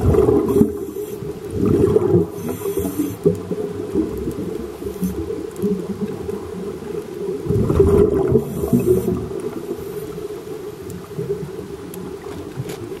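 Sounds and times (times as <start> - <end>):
underwater bubbling: 0.0 - 13.0
diver breathing through regulator: 0.2 - 3.3, 8.3 - 10.3.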